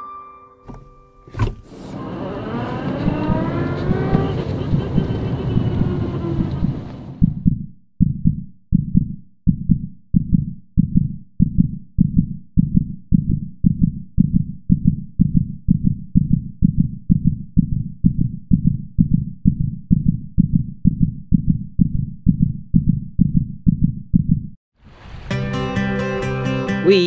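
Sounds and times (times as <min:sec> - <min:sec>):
heartbeat-like thumps: 0:03.0 - 0:24.6.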